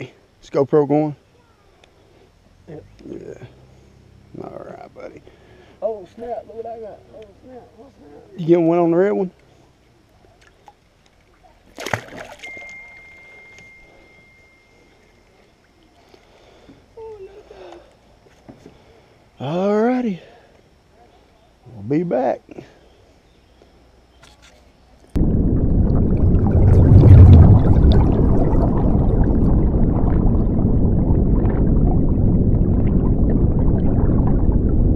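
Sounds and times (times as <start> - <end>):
water splashing: 10.3 - 13.4, 25.2 - 34.9
bubbles popping: 25.2 - 34.9.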